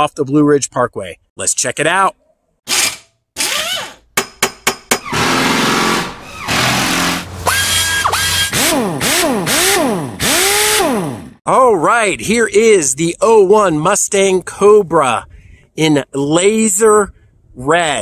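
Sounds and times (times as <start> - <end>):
power-tool-like whir: 2.7 - 4.0, 5.0 - 11.4
rising and falling tones: 5.0 - 9.3.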